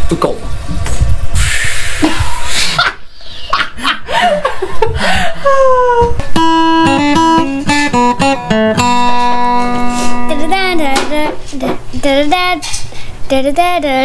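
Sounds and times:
people laughing: 2.0 - 6.2
acoustic guitar picked: 6.1 - 12.4.

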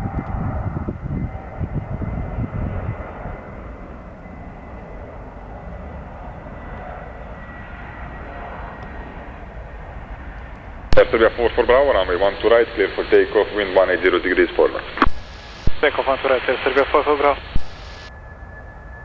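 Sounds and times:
airliner engines rumbling: 0.0 - 19.0
thin high tone: 15.2 - 19.0.

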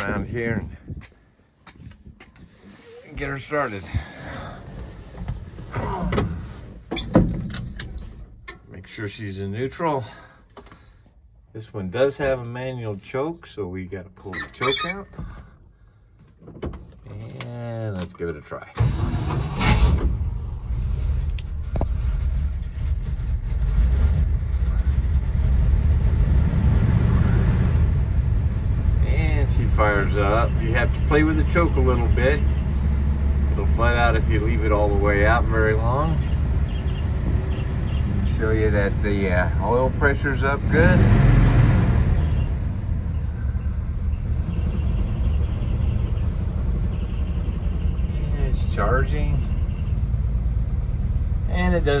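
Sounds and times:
truck engine rumbling: 14.4 - 52.0.

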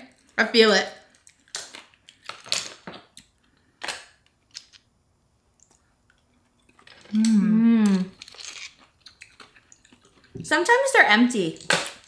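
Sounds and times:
shellfish shells cracking: 1.1 - 4.9, 5.6 - 10.4.

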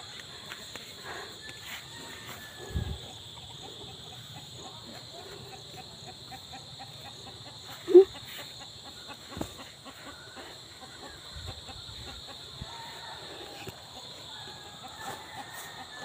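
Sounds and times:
chicken clucking: 0.6 - 13.0.

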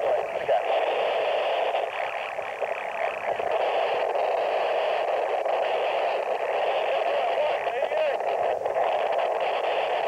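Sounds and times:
faint voices: 6.6 - 8.5.

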